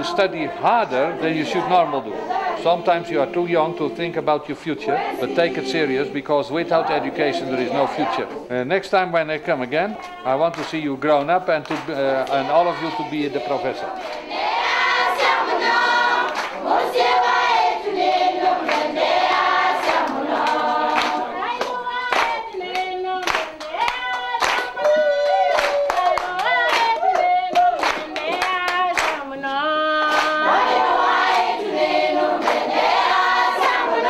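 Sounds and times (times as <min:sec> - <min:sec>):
children and women singing: 0:00.0 - 0:08.5, 0:09.9 - 0:10.9, 0:11.7 - 0:34.0
hand clapping: 0:10.0 - 0:12.4, 0:16.3 - 0:16.6, 0:19.8 - 0:30.4, 0:32.4 - 0:32.7.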